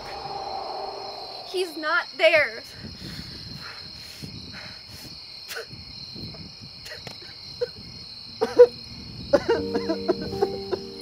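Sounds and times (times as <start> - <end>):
film score held tones: 0.0 - 2.7, 9.6 - 11.0
crickets chirring: 0.0 - 11.0.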